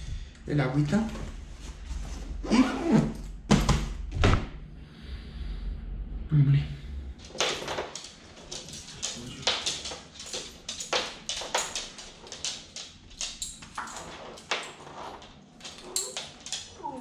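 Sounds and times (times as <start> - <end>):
leash clips clicking: 7.2 - 17.0.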